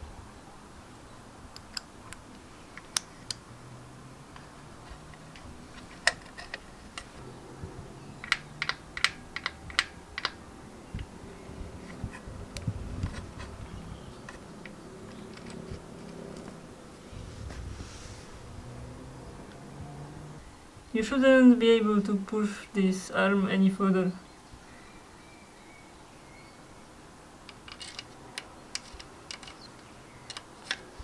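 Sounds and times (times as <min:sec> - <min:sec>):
sharp metallic clicks: 0:08.2 - 0:10.4.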